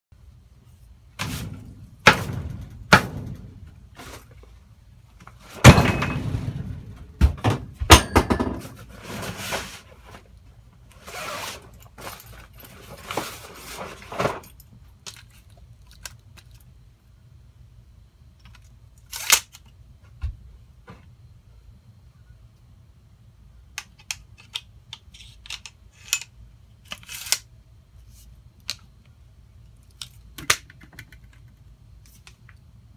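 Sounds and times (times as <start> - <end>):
knocks and clunks on wood: 5.6 - 8.8.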